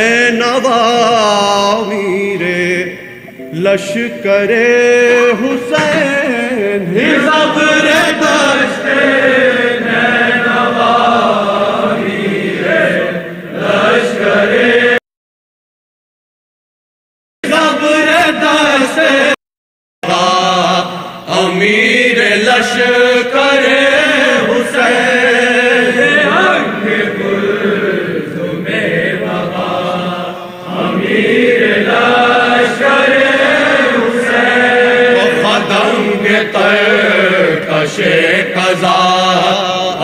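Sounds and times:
men chanting without instruments: 3.6 - 15.0, 20.0 - 40.0.

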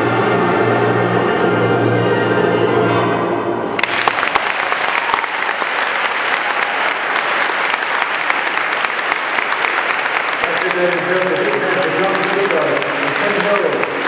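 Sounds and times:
wind orchestra chord with tuba: 0.0 - 3.7
audience applauding: 3.8 - 14.0.

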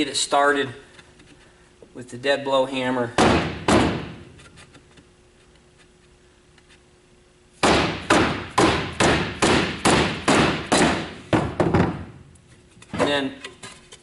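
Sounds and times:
hammer tapping wood: 7.6 - 12.0.

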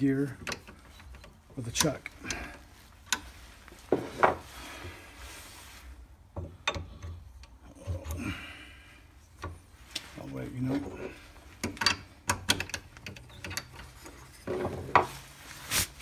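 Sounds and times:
metal gauge clicks: 11.6 - 14.0.

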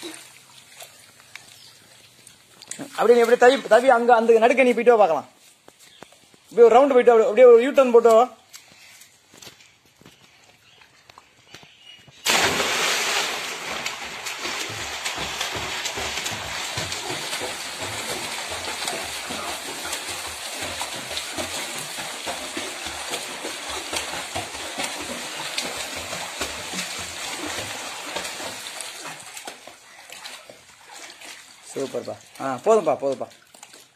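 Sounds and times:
swimming splashes: 0.0 - 5.6, 6.3 - 33.9
loud splash into pool: 12.2 - 29.6.

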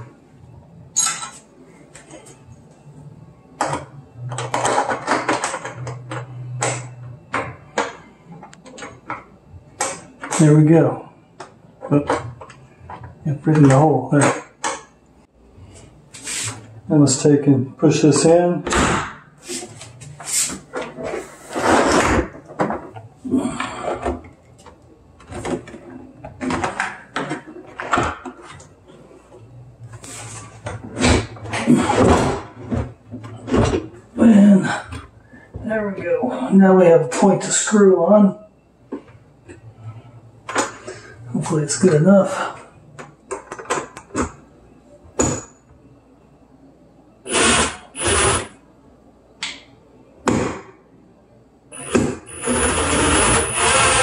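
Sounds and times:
cordless drill driving screws: 47.3 - 48.5, 51.8 - 54.0.

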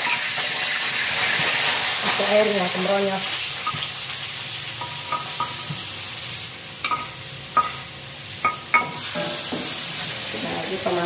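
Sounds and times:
spice paste sizzling in a wok: 0.0 - 11.0
metal spatula knocking on wok: 6.8 - 7.8.

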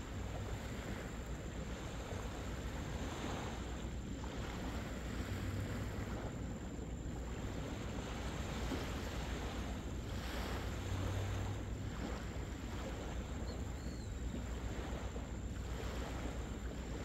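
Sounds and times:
small waves washing onto beach: 0.0 - 17.0
wind rumbling on microphone: 0.0 - 17.0.

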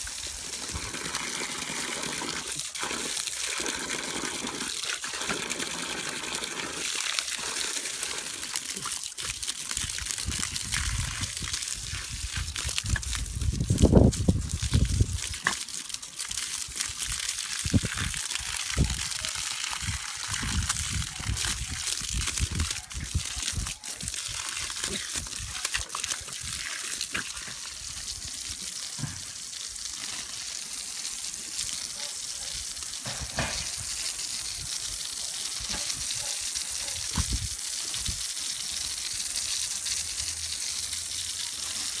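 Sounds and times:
hose spraying water on grass: 0.0 - 42.0
low thumps and splatters: 8.8 - 15.7, 37.1 - 37.5.

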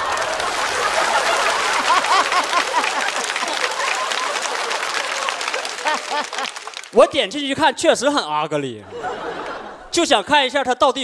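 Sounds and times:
audience applauding: 0.0 - 7.2
scattered laughter: 0.2 - 6.6.

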